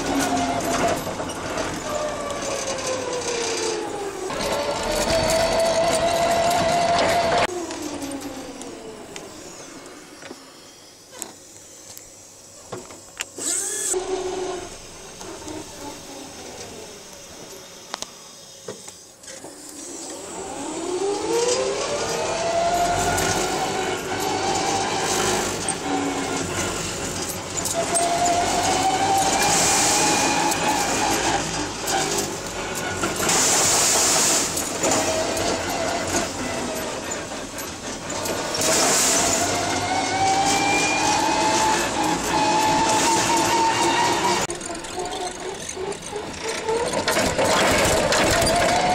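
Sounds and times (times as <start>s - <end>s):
forklift drive whine: 0.0s - 48.9s
forklift knocks and rattles: 22.8s - 48.9s.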